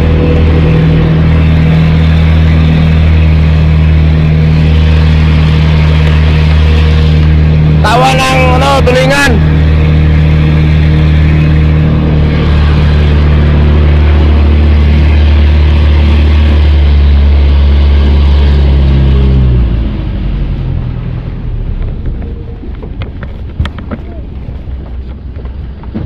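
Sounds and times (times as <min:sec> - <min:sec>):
boat engine running: 0:00.0 - 0:26.0
water noise: 0:00.0 - 0:26.0
wind: 0:00.0 - 0:26.0.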